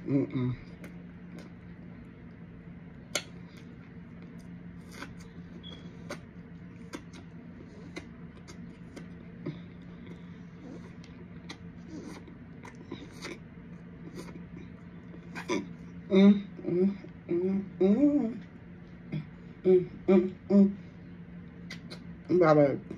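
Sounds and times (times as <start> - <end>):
steady low hum: 0.0 - 22.9
mouth clicks and crunches: 3.0 - 15.9, 21.5 - 22.3.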